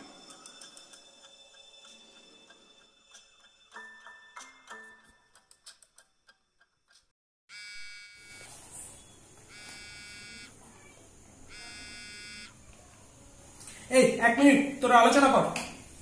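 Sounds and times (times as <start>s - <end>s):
phone ringtone in a pocket: 7.5s - 10.5s, 11.5s - 12.6s.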